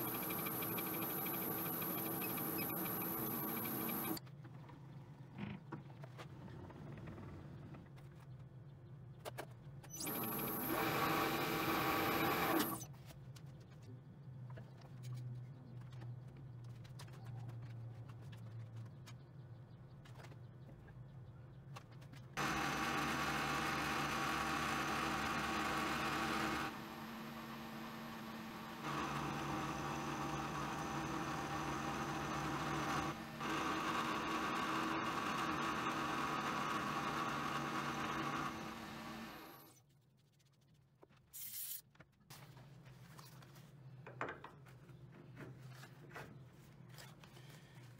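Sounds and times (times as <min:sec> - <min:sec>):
mill-drill cutting metal: 0:00.0 - 0:04.2, 0:10.0 - 0:12.8, 0:22.4 - 0:26.8, 0:28.7 - 0:39.7.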